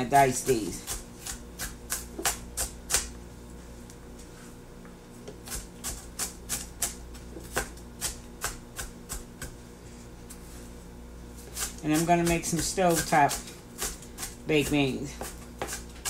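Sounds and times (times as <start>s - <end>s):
faint steady hum: 0.0s - 16.0s
knife dicing on cutting board: 11.5s - 16.0s.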